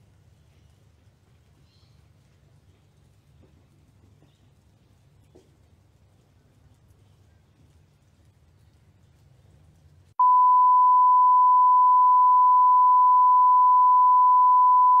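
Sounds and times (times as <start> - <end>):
steady test tone: 10.2 - 15.0.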